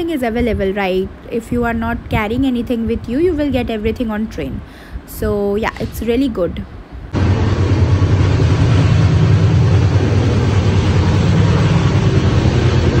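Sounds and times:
train rumble inside coach: 7.2 - 13.0.

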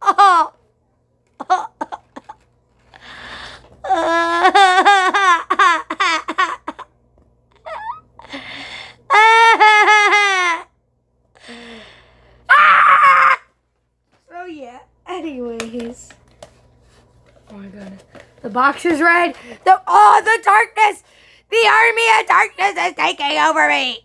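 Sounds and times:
person giggling: 1.4 - 2.4, 3.8 - 6.9, 7.6 - 8.3.

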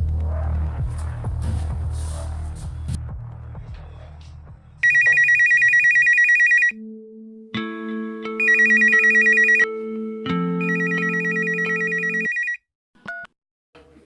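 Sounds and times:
phone ringtone trilling: 4.8 - 6.8, 8.4 - 9.8, 10.6 - 12.6.

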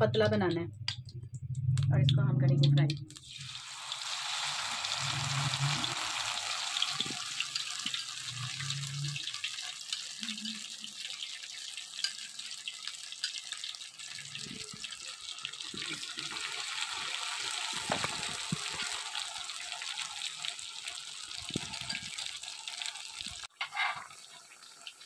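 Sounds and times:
food deep-frying in hot oil: 2.8 - 25.0.

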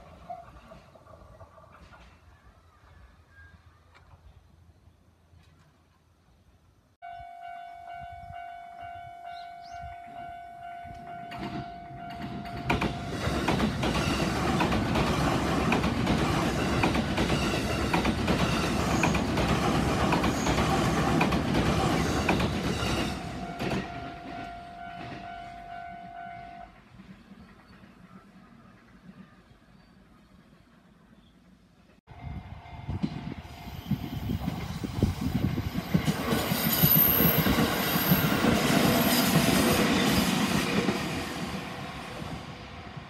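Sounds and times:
train wheels rushing on rails: 11.3 - 25.4, 32.2 - 43.0
level-crossing alarm bell ringing: 22.8 - 26.7.

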